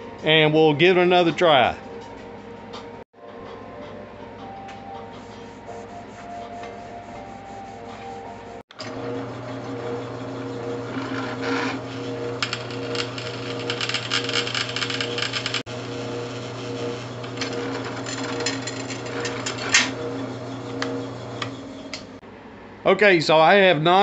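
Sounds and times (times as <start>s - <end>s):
drill press motor hum: 8.7s - 22.2s
drill bit cutting metal: 8.9s - 22.0s.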